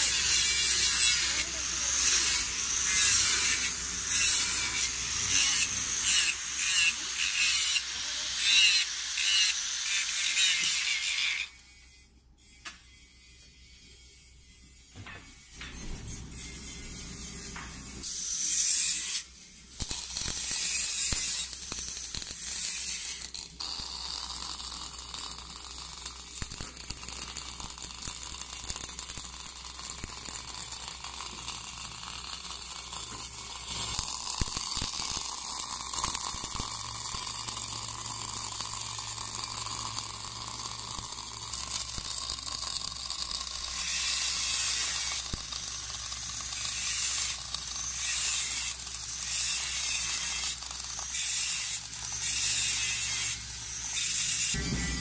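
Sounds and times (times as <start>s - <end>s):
welding arc crackling: 0.0s - 11.5s, 15.0s - 55.0s
low hum: 54.6s - 55.0s.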